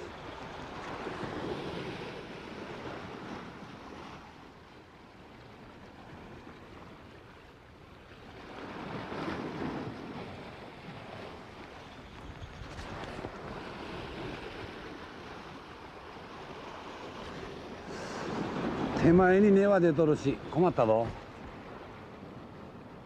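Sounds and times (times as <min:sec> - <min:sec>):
sea waves washing against rocks: 0:00.0 - 0:04.8, 0:08.2 - 0:23.0
wind on microphone: 0:08.4 - 0:19.5.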